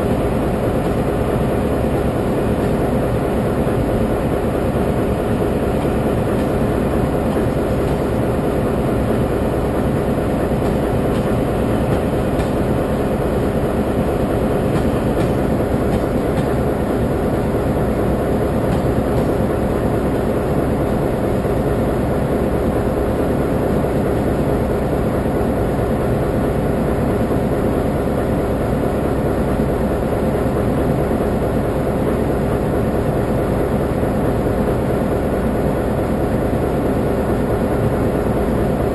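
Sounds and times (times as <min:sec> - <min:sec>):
locomotive machinery rumbling: 0:00.0 - 0:22.6.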